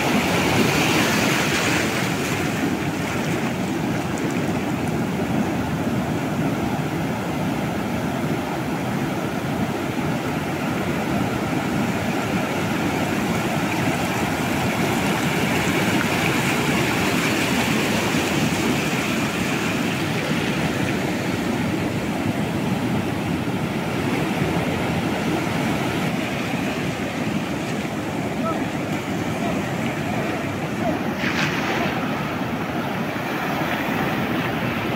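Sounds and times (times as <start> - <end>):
surf breaking on beach: 0.0 - 34.9.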